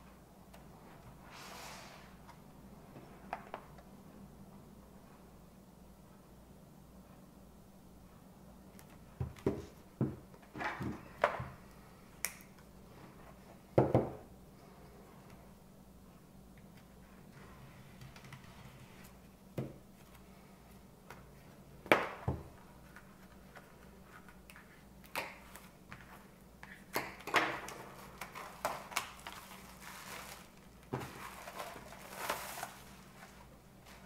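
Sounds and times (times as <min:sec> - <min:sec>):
plastic wrap crinkling: 0:27.7 - 0:34.0.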